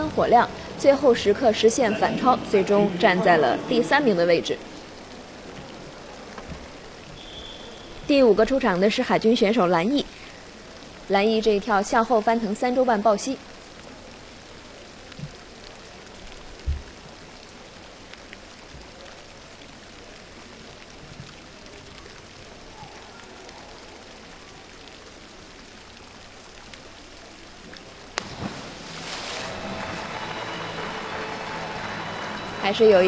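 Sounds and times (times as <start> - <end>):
splashing water: 28.1 - 33.0
diver slapping water: 28.2 - 31.6.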